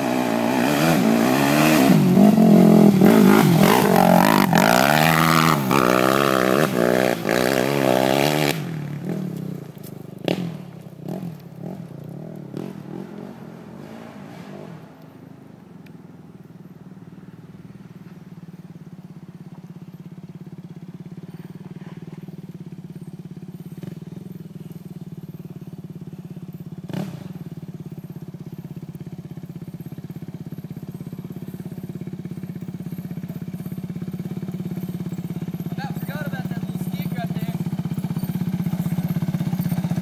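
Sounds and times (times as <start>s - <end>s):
quad bike engine running: 0.0s - 40.0s.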